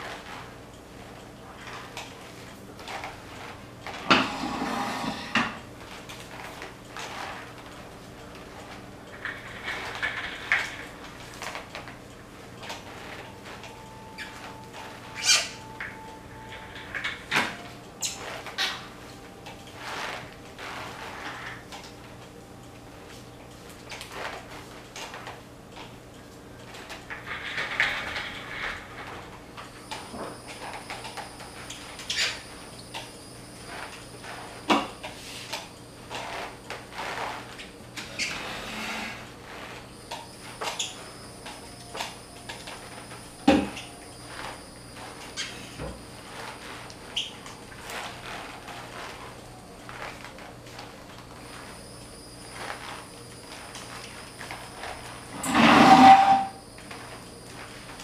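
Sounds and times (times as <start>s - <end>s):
wet mop swishing on tile floor: 0.0s - 17.4s, 18.0s - 22.2s, 28.4s - 58.0s
faint steady hum: 0.0s - 58.0s
footsteps in a leg cast: 28.7s - 55.5s.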